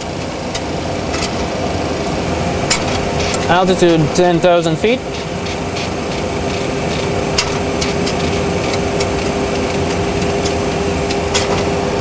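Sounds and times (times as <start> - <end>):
faint steady hum: 0.0 - 12.0
rushing flight deck noise: 2.2 - 10.7.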